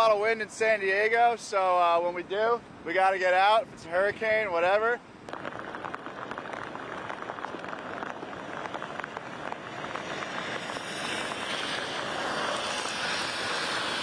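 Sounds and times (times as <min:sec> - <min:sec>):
rain falling: 0:05.2 - 0:14.0
car tyres hissing on wet road: 0:05.3 - 0:14.0.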